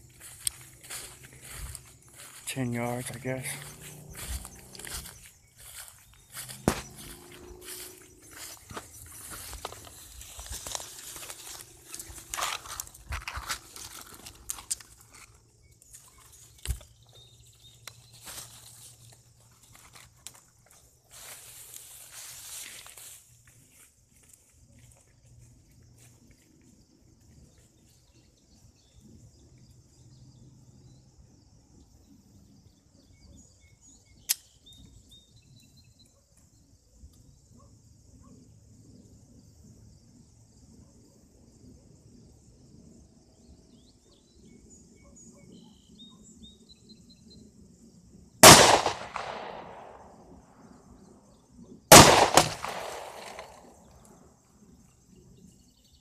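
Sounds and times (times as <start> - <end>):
pistol shots echoing: 48.4 - 50.1, 51.9 - 53.7.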